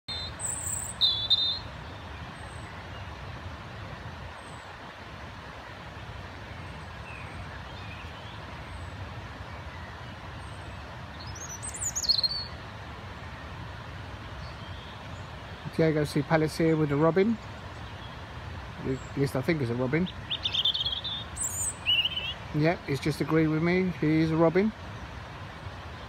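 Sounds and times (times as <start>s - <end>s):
robin singing: 0.1s - 3.1s, 6.5s - 12.6s, 14.4s - 26.0s.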